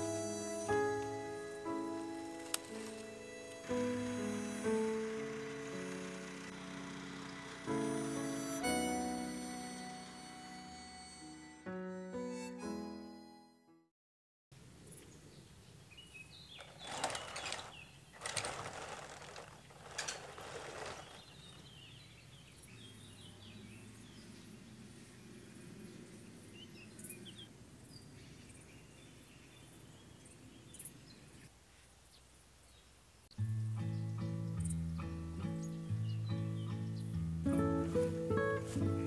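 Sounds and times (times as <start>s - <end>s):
small birds chirping: 14.8s - 39.0s.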